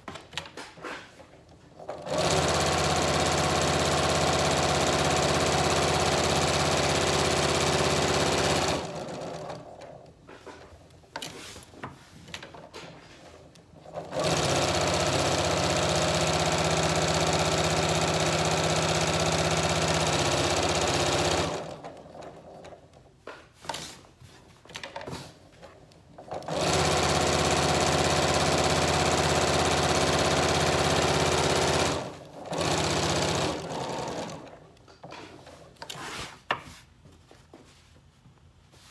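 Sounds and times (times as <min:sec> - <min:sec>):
electric sewing machine stitching: 0:01.8 - 0:10.6, 0:13.6 - 0:23.0, 0:26.2 - 0:34.8.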